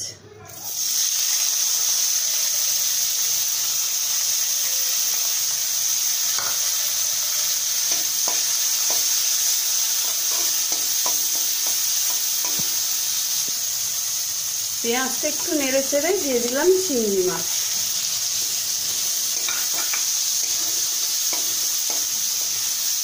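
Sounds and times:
onions sizzling in hot oil: 0:00.5 - 0:23.0
spatula scraping a pan: 0:06.2 - 0:12.8, 0:18.4 - 0:22.4.

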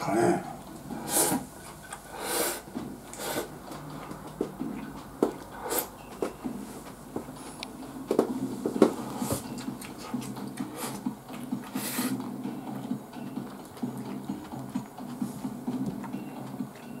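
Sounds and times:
man chewing: 0:00.0 - 0:07.8, 0:08.8 - 0:12.4.

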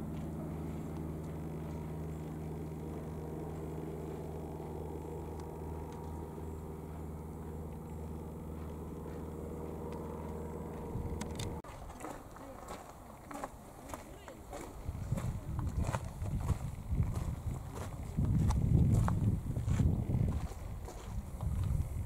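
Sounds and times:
low engine drone: 0:00.0 - 0:11.7.

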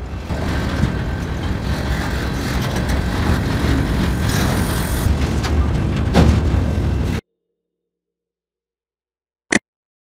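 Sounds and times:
train wheels rumbling on rails: 0:00.0 - 0:07.2.

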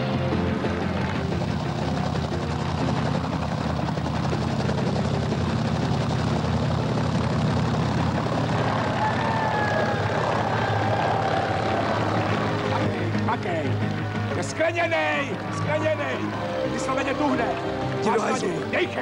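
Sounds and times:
helicopter rotor chopping: 0:00.0 - 0:19.0.

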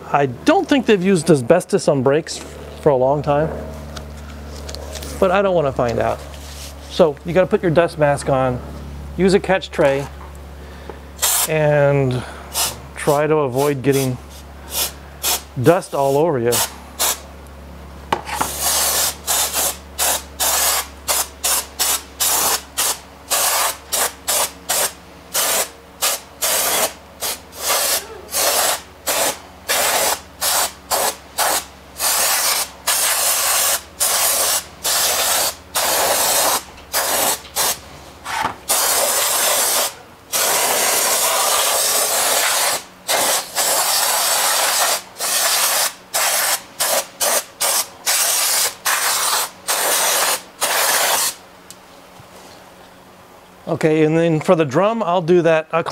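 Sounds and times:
aerosol can spraying: 0:11.2 - 0:11.5, 0:18.2 - 0:37.8, 0:38.6 - 0:51.4.

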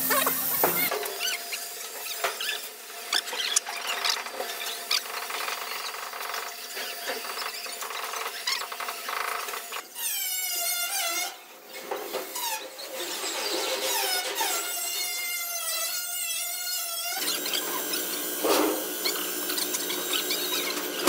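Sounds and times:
welding arc crackling: 0:00.0 - 0:00.9
high-pitched squeal: 0:00.0 - 0:03.9.

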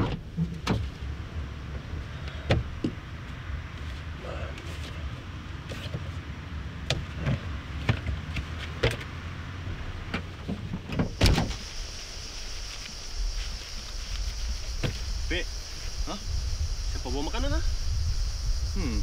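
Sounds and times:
outdoor ambience hiss: 0:00.0 - 0:19.0
car tailgate shutting thump: 0:10.1 - 0:11.6.

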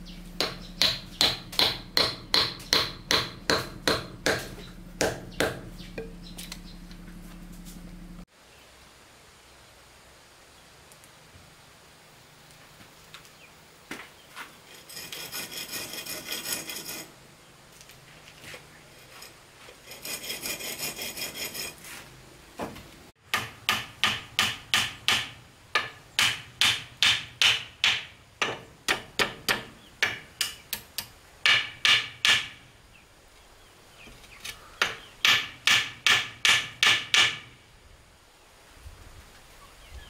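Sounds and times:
hand tool rasping wood: 0:00.3 - 0:06.2, 0:14.6 - 0:17.1, 0:18.4 - 0:22.1.

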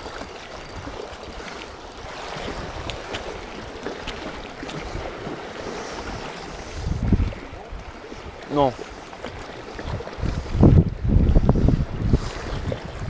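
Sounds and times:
faint ticks: 0:00.0 - 0:02.1
surf washing against rocks: 0:00.0 - 0:13.0
wind on microphone: 0:00.0 - 0:13.0.

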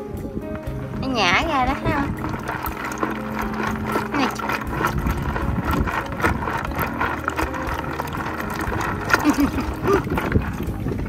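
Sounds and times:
water sloshing in a plastic bucket: 0:00.6 - 0:11.0.

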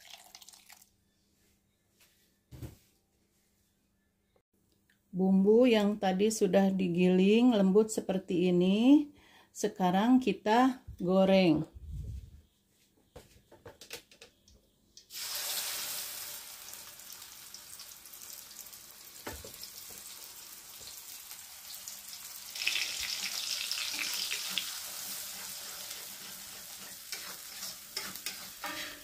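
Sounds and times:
paste sizzling in hot oil: 0:15.1 - 0:29.0.

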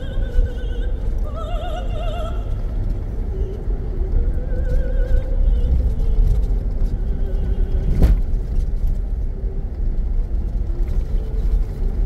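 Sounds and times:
tyre and suspension rumble: 0:00.0 - 0:12.0.

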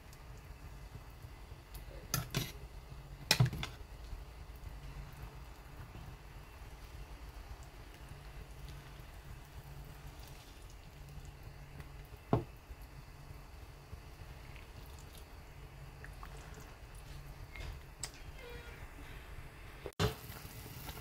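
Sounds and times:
liquid sloshing and dripping: 0:14.3 - 0:18.2.

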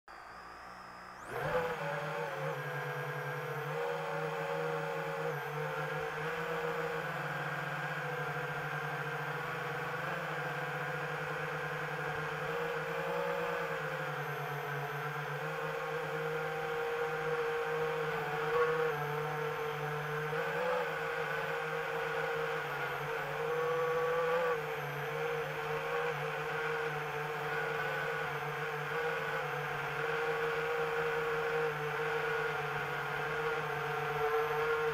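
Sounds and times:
drone propellers whirring: 0:00.1 - 0:10.5.

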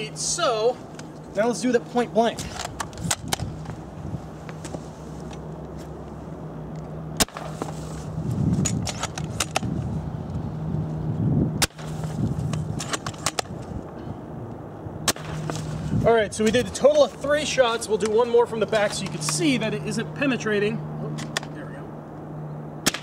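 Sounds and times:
rifle handling clicks and rustling: 0:02.3 - 0:03.8, 0:08.6 - 0:09.7, 0:11.8 - 0:13.7, 0:18.8 - 0:19.5
airsoft rifle shot crack: 0:07.2 - 0:07.6, 0:15.0 - 0:15.5.

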